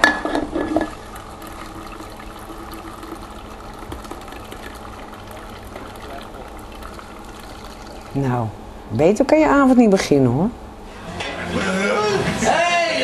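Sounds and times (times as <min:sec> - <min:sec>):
thick drink pouring into glass: 0:00.8 - 0:08.4.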